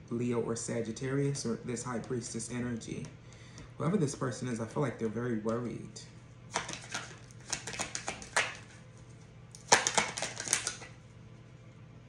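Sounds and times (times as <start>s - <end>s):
cards being shuffled: 6.5s - 11.0s.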